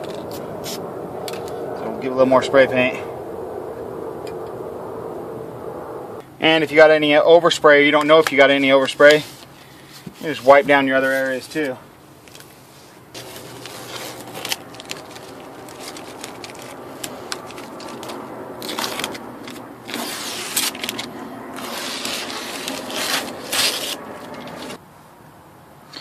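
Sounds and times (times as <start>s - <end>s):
rubbing and scraping handling noise: 8.0s - 24.8s.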